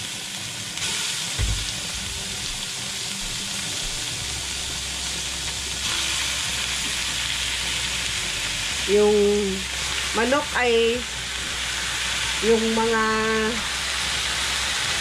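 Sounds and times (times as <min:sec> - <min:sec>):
chicken sizzling in hot oil: 0:00.0 - 0:15.0
low thump: 0:01.4 - 0:02.3.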